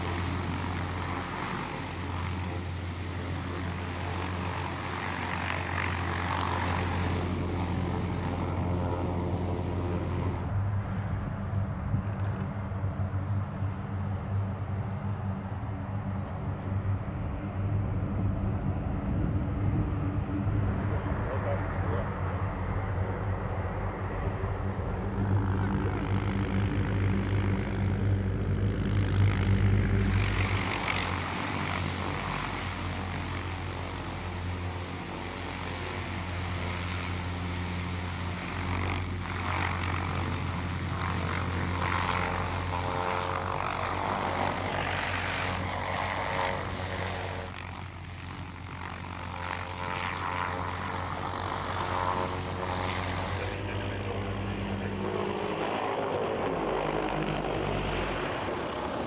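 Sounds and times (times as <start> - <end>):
helicopter rotors and engines: 0.0 - 59.0.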